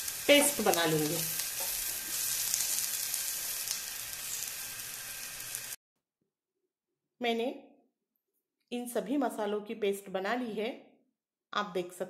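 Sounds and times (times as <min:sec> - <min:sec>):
spatula stirring in pan: 0:00.0 - 0:05.7
onions sizzling in oil: 0:00.0 - 0:05.8.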